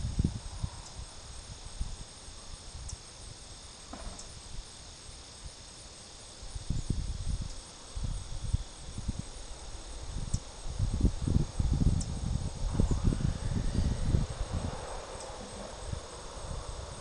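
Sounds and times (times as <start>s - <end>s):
wind rumbling on microphone: 0.0s - 5.7s, 6.3s - 17.0s
crickets chirring: 0.0s - 17.0s.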